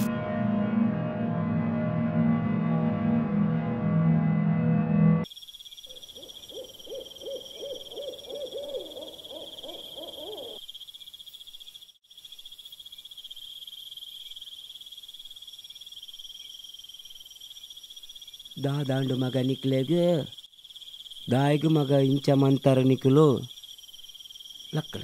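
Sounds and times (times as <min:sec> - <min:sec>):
insects chirring: 0:05.2 - 0:25.0
low quavering hoot-like call: 0:05.9 - 0:10.6.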